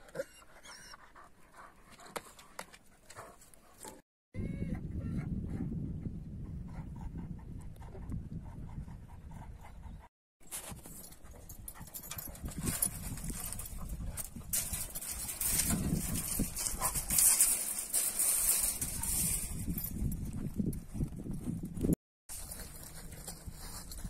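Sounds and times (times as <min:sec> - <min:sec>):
dogs scuffling on dirt: 0:10.4 - 0:24.0.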